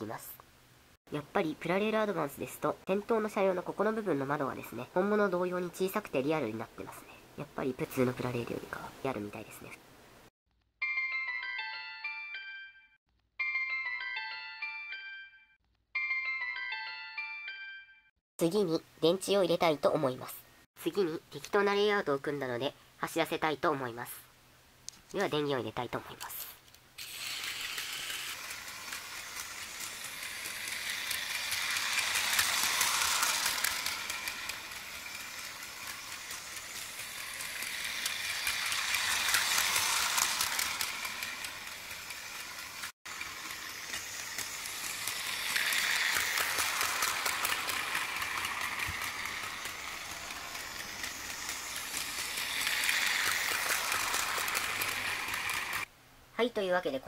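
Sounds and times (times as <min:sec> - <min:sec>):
toy train motor whirring: 0:26.0 - 0:55.9
wheels clicking over track: 0:27.0 - 0:55.9.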